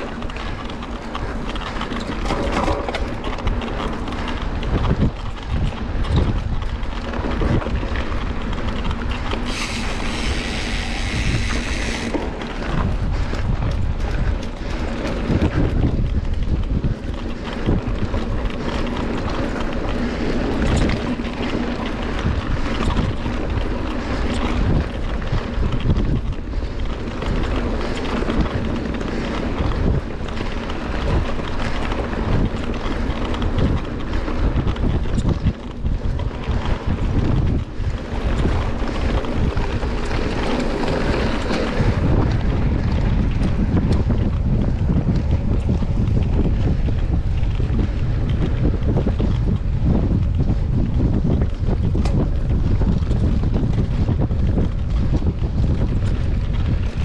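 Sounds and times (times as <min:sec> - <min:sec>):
wind buffeting microphone: 0:00.0 - 0:57.0
burst of hiss: 0:09.5 - 0:12.1.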